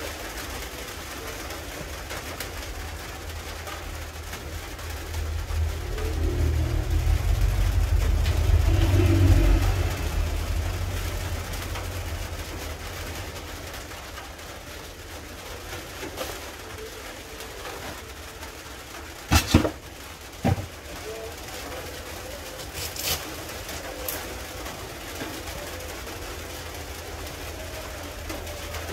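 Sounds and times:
low rumble: 5.0s - 12.6s.

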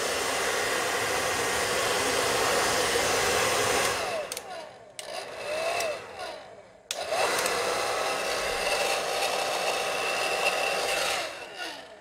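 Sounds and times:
hair dryer fan whining: 0.0s - 12.0s
hair dryer switch click: 3.8s - 6.0s, 6.9s - 7.6s.

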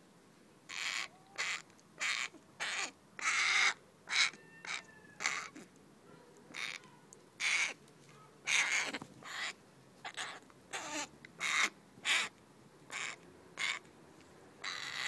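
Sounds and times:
crow cawing harshly: 0.7s - 5.6s, 7.4s - 7.8s, 8.5s - 12.3s, 12.9s - 13.8s, 14.6s - 15.0s.

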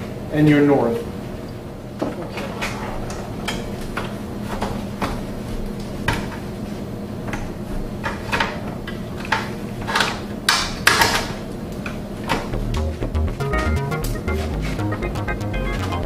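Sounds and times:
low steady hum: 12.4s - 16.0s.

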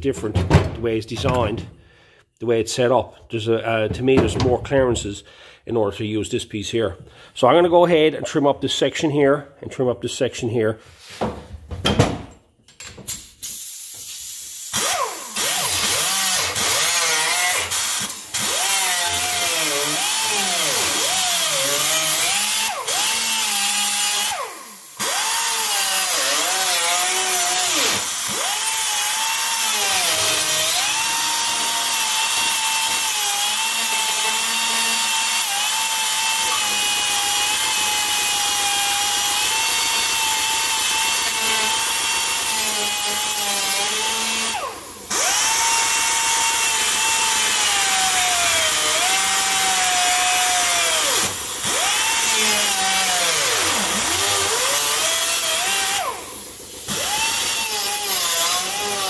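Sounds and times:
air grinder cutting sheet steel: 14.5s - 59.0s.

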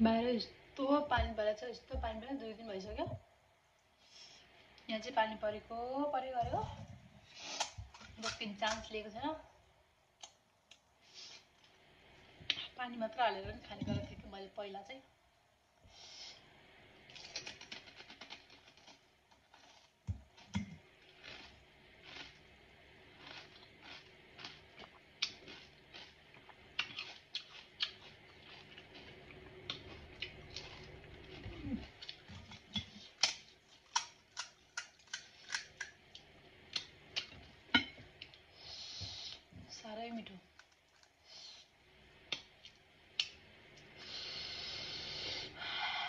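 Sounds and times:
crisp shells crunching when chewed: 17.1s - 22.4s, 23.1s - 37.3s.

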